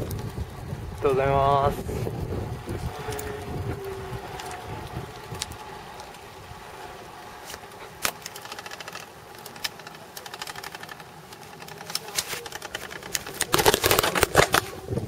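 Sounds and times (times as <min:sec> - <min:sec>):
wind rush on microphone: 0:00.0 - 0:08.0, 0:13.0 - 0:15.0
bicycle freewheel ticking: 0:00.0 - 0:13.8.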